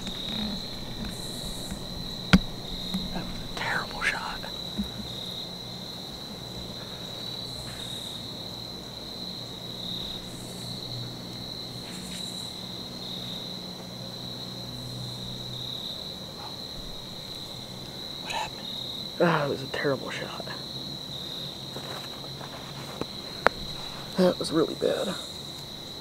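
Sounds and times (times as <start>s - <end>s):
crickets trilling: 0.0s - 26.0s.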